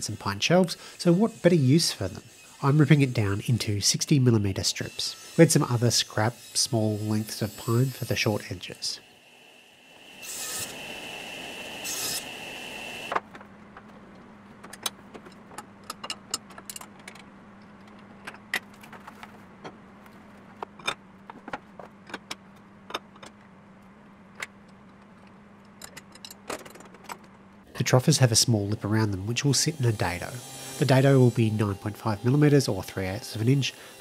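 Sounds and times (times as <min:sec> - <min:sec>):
table saw ripping wood: 0:10.0 - 0:13.3, 0:28.6 - 0:34.0.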